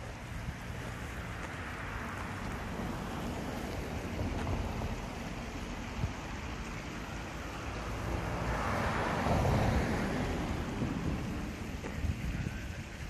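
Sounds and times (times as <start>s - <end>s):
wind buffeting microphone: 9.0s - 13.0s.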